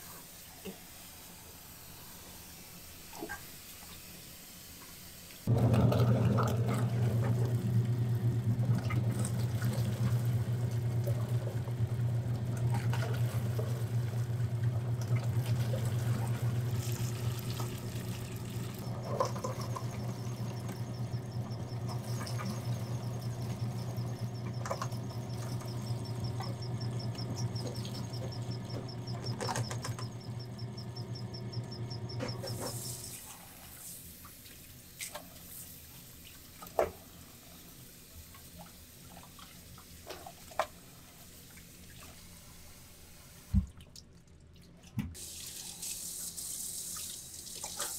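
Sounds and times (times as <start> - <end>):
tap water running: 5.3 - 42.3, 45.0 - 47.9
meat grinder humming: 5.5 - 33.2.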